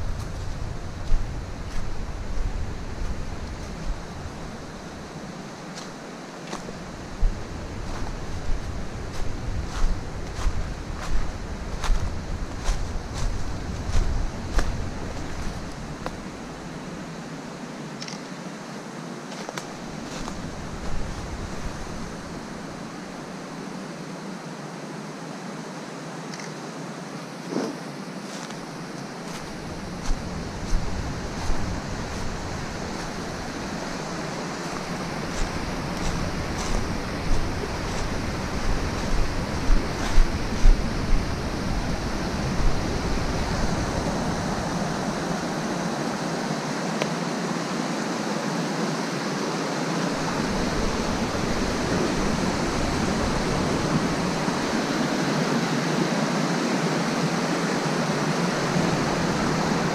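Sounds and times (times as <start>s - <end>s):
footsteps on dry leaves: 0.0s - 16.8s, 19.3s - 22.8s, 27.5s - 45.8s, 50.1s - 55.0s
creek rushing over rocks: 0.0s - 17.2s, 27.4s - 59.9s
footsteps on wooden boards: 28.3s - 40.8s.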